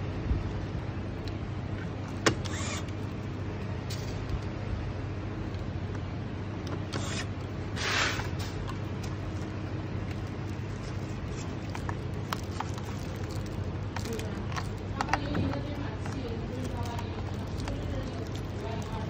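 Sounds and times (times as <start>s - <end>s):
rustling scrape of plastic: 6.8s - 19.0s.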